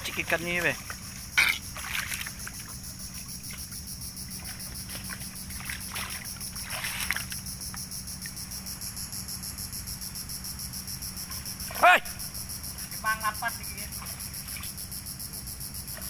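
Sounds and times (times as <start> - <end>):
hands splashing shallow water: 0.0 - 3.7, 4.3 - 7.4
insects buzzing in chorus: 0.0 - 16.0.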